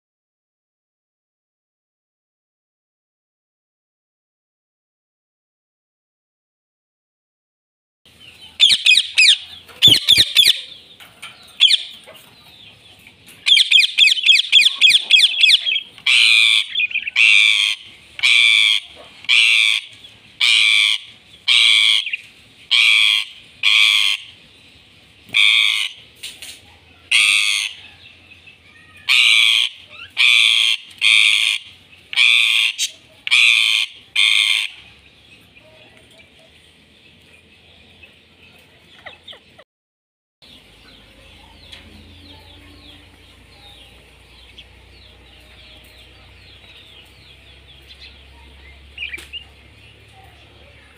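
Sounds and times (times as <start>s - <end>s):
parakeets chattering trills: 8.1s - 26.2s, 26.9s - 36.4s, 40.5s - 50.9s
parakeets harsh screeches: 8.6s - 10.7s, 25.4s - 26.0s, 27.1s - 27.8s, 29.0s - 34.8s.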